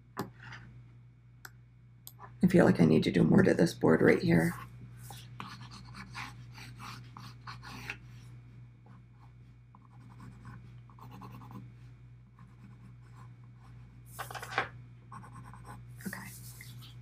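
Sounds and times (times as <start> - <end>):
pencil scratching on paper: 4.4 - 8.0, 9.8 - 11.6, 15.1 - 16.9.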